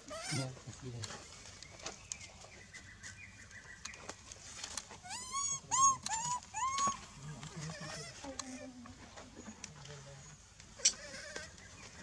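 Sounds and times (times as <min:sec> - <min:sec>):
macaque coos: 0:00.0 - 0:00.6, 0:05.0 - 0:08.8, 0:10.8 - 0:11.6
faint rustles and clicks: 0:00.1 - 0:12.0.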